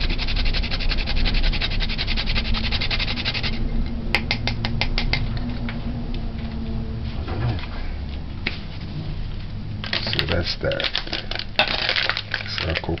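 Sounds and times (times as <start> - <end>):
nutmeg scraping on hand grater: 0.0 - 3.6.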